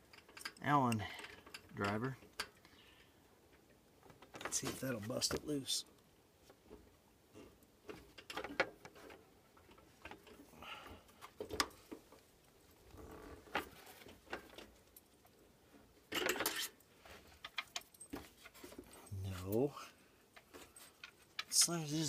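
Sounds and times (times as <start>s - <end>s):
metal tools rattling: 17.4s - 22.0s.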